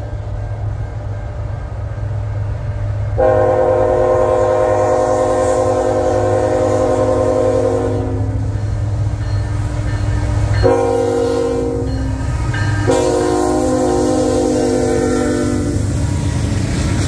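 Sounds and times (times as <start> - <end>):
locomotive air horn blasts: 3.2 - 8.6, 10.6 - 15.9.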